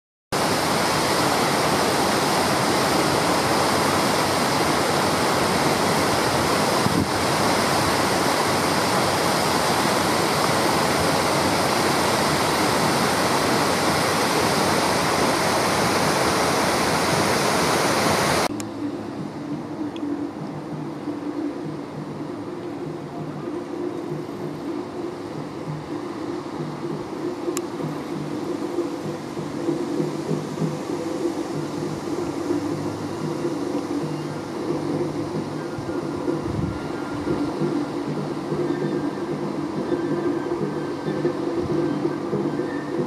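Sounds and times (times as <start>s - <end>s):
water rushing over weir: 0.4s - 43.0s.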